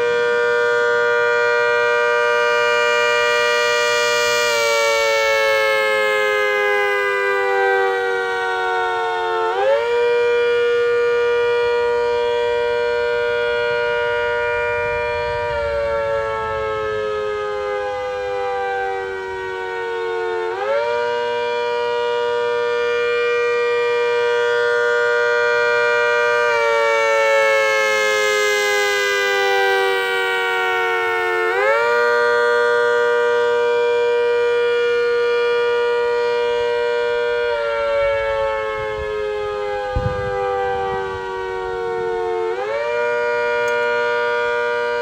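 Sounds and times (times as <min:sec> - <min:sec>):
rotating siren wailing: 0:00.0 - 0:45.0.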